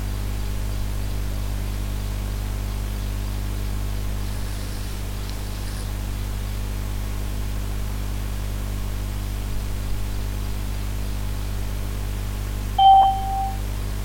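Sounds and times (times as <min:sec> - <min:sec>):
electrical hum: 0:10.8 - 0:14.0
short electronic beep: 0:12.8 - 0:13.6.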